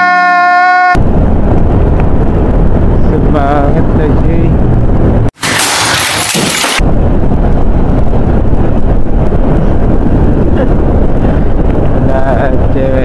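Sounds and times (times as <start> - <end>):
wind rushing over microphone: 1.0 - 5.5, 6.4 - 13.0.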